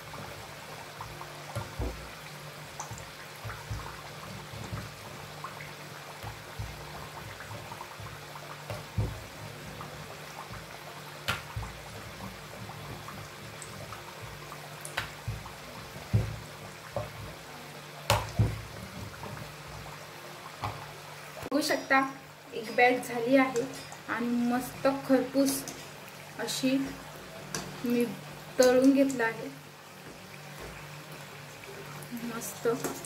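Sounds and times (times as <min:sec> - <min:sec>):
oil popping and crackling: 0:00.0 - 0:21.6, 0:23.4 - 0:33.0
food deep-frying in oil: 0:00.0 - 0:33.0.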